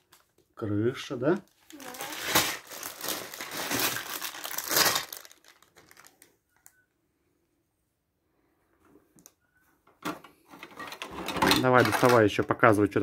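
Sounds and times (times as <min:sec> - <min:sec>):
plastic bags crinkling: 0:01.4 - 0:06.7, 0:11.4 - 0:12.3.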